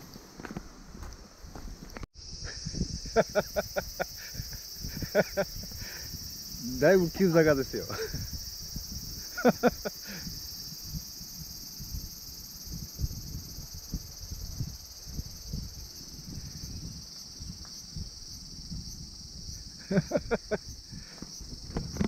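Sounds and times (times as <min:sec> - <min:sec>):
footsteps on dirt trail: 0:00.0 - 0:02.1
cicada chorus: 0:00.0 - 0:22.0.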